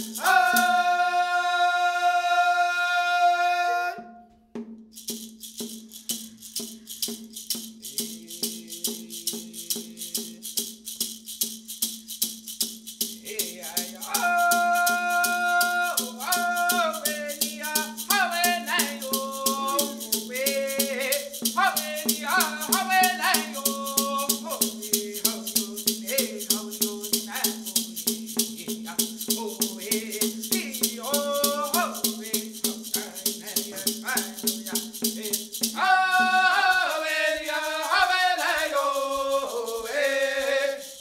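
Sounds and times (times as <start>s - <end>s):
hand rattle shaken: 0.0s - 1.1s, 4.8s - 41.0s
higher voice singing melody: 0.0s - 4.1s, 35.8s - 41.0s
low voice singing: 0.2s - 4.1s.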